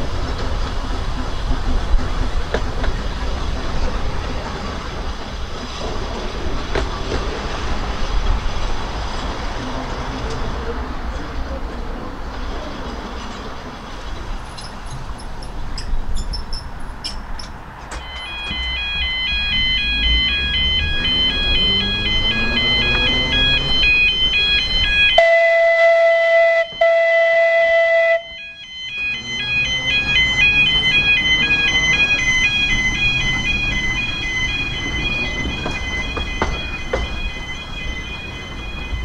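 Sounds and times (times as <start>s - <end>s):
electric tram motor whine: 18.0s - 25.3s, 28.2s - 39.0s
loud steady hooting tone: 18.0s - 39.0s
warbling electronic warning tone: 18.0s - 39.0s.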